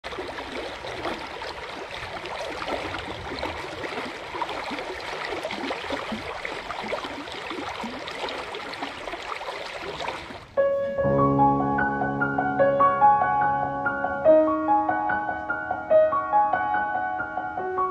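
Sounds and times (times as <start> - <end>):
water rushing over rocks: 0.1 - 10.5
piano music: 10.6 - 17.9.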